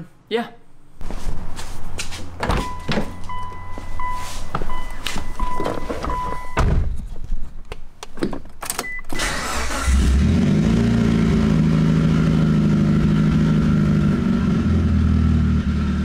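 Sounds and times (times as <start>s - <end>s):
car engine starting and idling: 8.6s - 16.0s.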